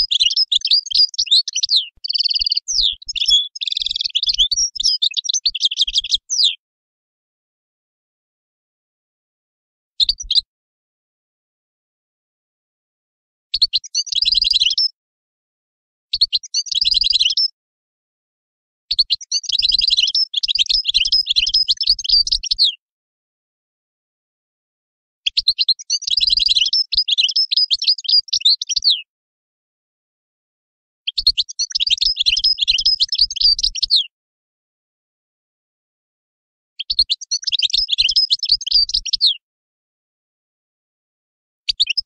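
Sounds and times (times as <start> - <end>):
bird twittering song: 0.0 - 6.6, 10.0 - 10.5, 13.6 - 15.0, 16.1 - 17.5, 18.9 - 22.8, 25.3 - 29.1, 31.1 - 34.1, 36.8 - 39.4, 41.7 - 42.0.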